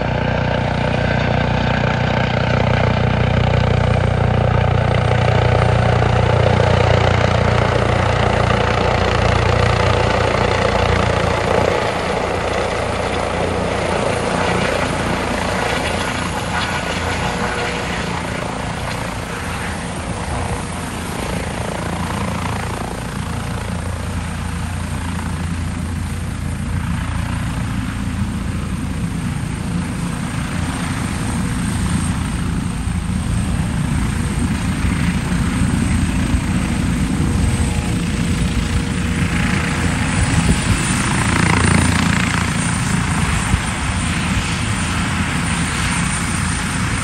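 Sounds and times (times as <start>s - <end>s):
helicopter rotor and turbine: 0.0s - 47.0s.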